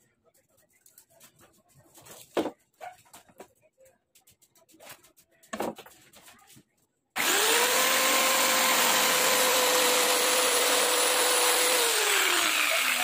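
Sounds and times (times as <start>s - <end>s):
power tool whining: 7.2s - 13.0s.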